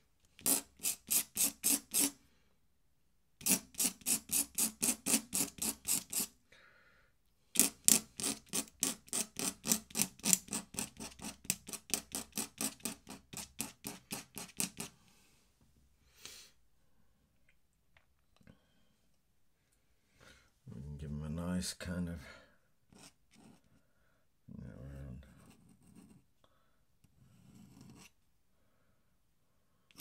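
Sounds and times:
pen nib scratching paper: 0.4 - 2.2, 3.4 - 6.3, 7.6 - 14.9, 22.9 - 23.8, 25.3 - 26.3, 27.2 - 28.2.

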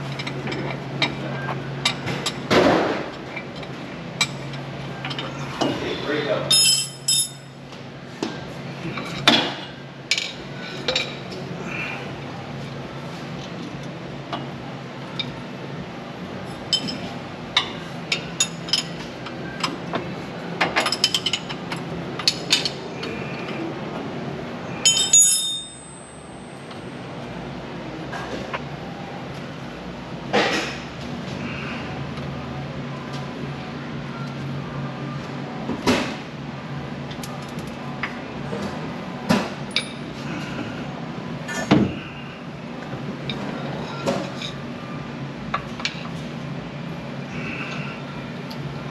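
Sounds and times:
ringing metal clank: 6.5 - 7.4, 24.9 - 26.4
metal tools clinking: 6.5 - 7.5, 24.9 - 26.4.

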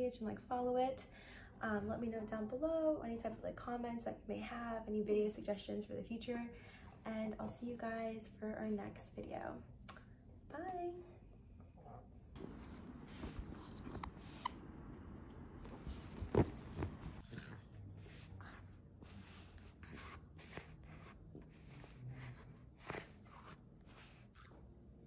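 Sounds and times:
puppy chewing on toys: 15.7 - 23.5.

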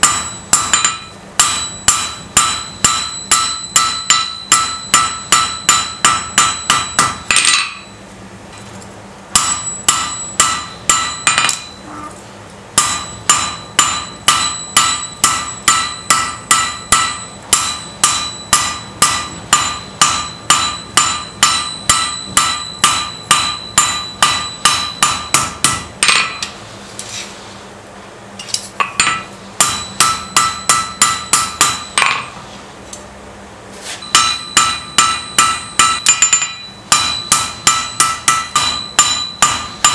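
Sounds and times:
hammer ringing on anvil: 0.0 - 8.0, 9.3 - 12.0, 12.8 - 26.6, 28.8 - 32.4, 34.0 - 39.9.

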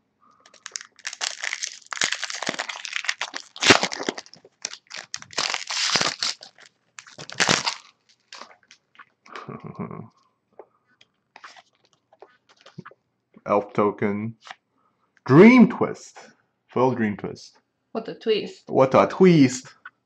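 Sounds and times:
foil wrapper crinkling: 0.4 - 8.9.

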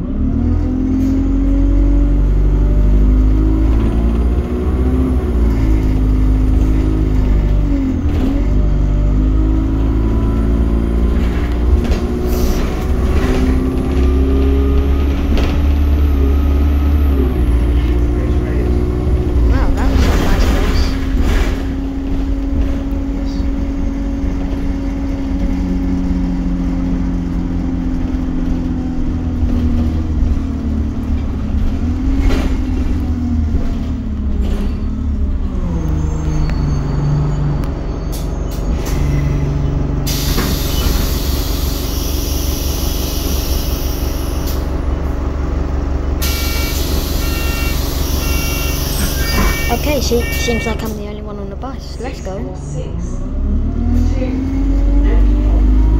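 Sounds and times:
bus engine hum: 0.0 - 55.9
air brake hiss: 40.1 - 44.6
electronic warning beeps: 46.3 - 51.0.

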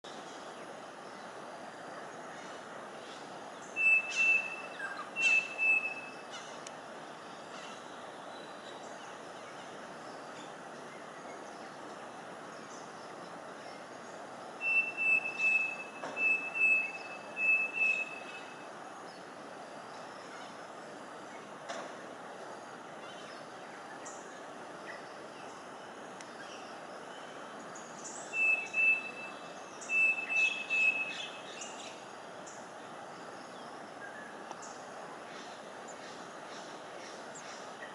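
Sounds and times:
steady background noise: 0.0 - 37.9
bird calling whistled notes: 3.6 - 6.3, 14.6 - 18.6, 28.0 - 32.0.

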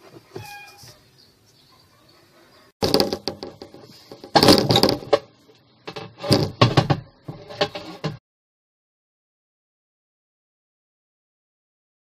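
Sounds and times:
plastic scraping and creaking: 2.8 - 8.2.

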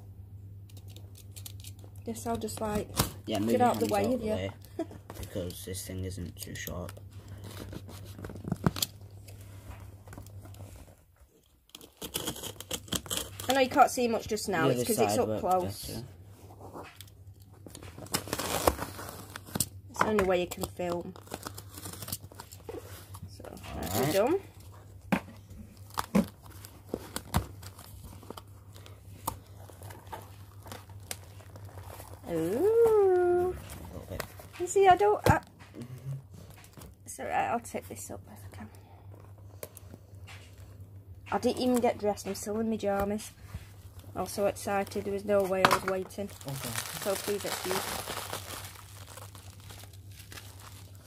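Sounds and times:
faint low hum: 0.0 - 51.0
blade cutting cardboard box: 11.8 - 13.6.

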